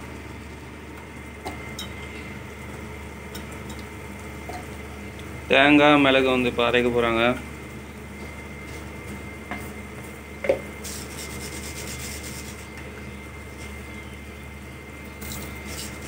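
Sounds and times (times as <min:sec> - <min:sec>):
steady low hum: 0:00.0 - 0:16.0
rubbing and scraping: 0:10.8 - 0:12.7.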